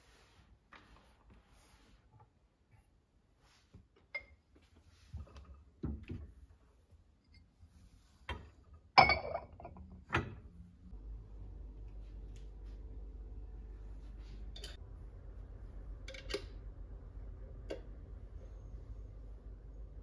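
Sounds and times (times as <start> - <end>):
dishes and glassware clinking: 9.0 - 9.8, 14.5 - 14.8
steady low hum: 10.4 - 20.0.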